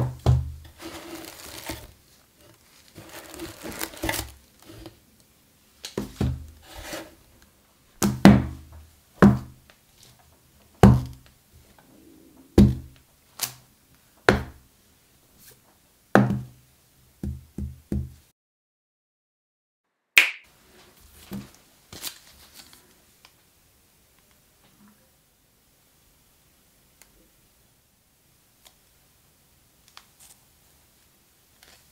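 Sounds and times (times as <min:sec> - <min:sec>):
cardboard boxes thudding: 0:00.0 - 0:01.9, 0:03.0 - 0:04.4
faint handling: 0:00.7 - 0:05.0.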